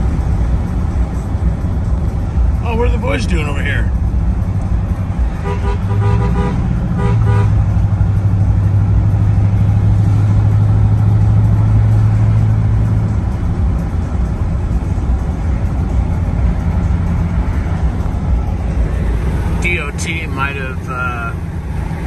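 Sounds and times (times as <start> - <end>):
car cabin drone: 0.0 - 22.0
car horn toots: 5.4 - 7.6.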